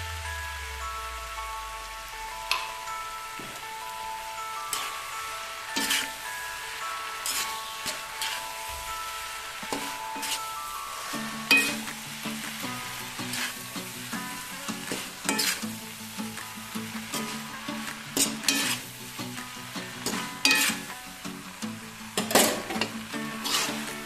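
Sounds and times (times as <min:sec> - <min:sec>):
noodles sizzling in a wok: 0:00.0 - 0:24.0
metal spatula scraping a pan: 0:05.7 - 0:06.4, 0:07.1 - 0:11.9, 0:12.7 - 0:15.8, 0:17.2 - 0:18.9, 0:20.0 - 0:20.9, 0:22.2 - 0:24.0.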